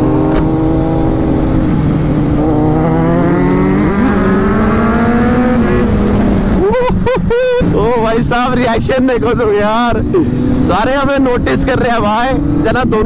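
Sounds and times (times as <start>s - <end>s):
motorcycle engine accelerating: 0.0s - 6.8s, 9.6s - 13.0s
motorcycle engines running: 0.0s - 13.0s.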